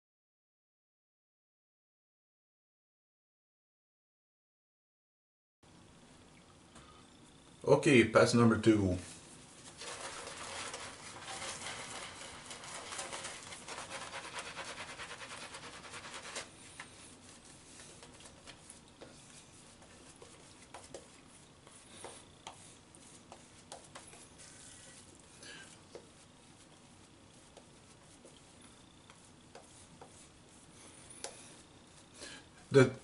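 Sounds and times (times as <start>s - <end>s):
shaving brush scrubbing lather: 9.5s - 33.0s.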